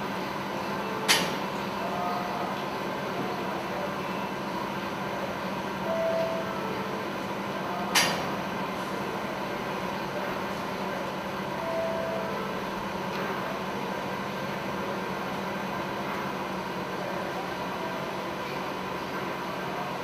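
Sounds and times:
sharp click: 1.1 - 1.4, 8.0 - 8.3
short single tone: 5.8 - 6.9, 11.6 - 12.5.

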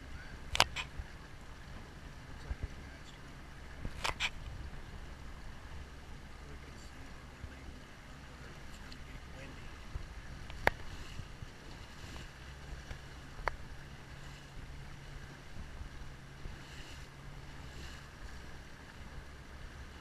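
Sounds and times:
outboard engine humming: 0.0 - 20.0
wind and water noise: 0.0 - 20.0
sharp tick: 0.5 - 0.8.

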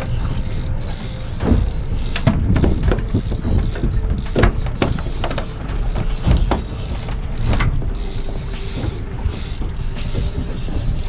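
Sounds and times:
wind and water rumble: 0.0 - 11.0
knocks against boat hull: 1.4 - 5.4.

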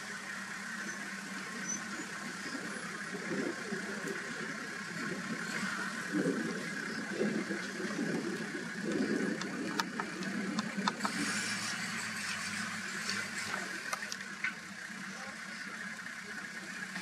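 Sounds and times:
vehicle engine idling: 0.0 - 17.0
sharp clicks: 8.9 - 11.2.

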